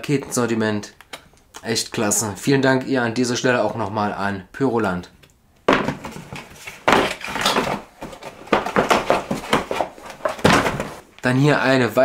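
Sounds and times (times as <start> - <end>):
cardboard boxes rustling and scraping: 5.7 - 11.0.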